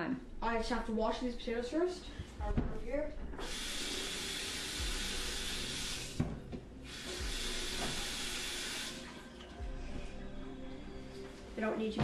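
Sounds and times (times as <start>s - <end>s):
tap water running into sink: 3.4s - 9.1s.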